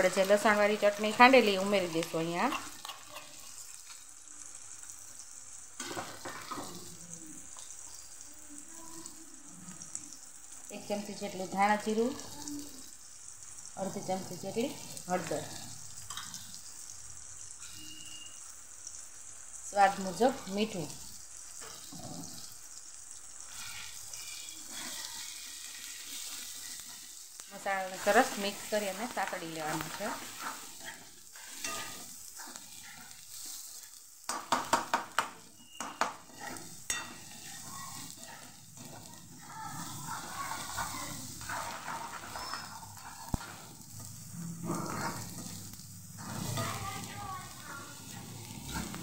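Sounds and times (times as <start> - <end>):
spatula stirring: 0.0 - 4.2, 23.4 - 49.0
vegetables sizzling in oil: 0.0 - 49.0
spoon knocking on pan: 34.3 - 37.2.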